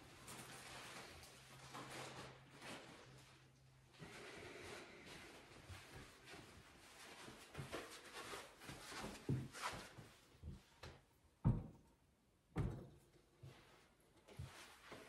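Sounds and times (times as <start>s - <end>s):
handling and shuffling noise: 0.0s - 11.0s, 13.4s - 15.0s.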